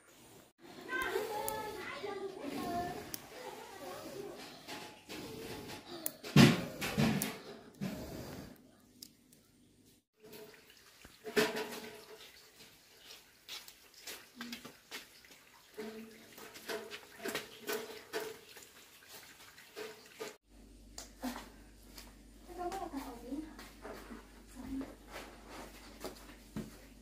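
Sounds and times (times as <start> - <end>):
metal pot clattering: 10.2 - 12.8, 15.7 - 18.8
water splashing in a basin: 10.2 - 20.4.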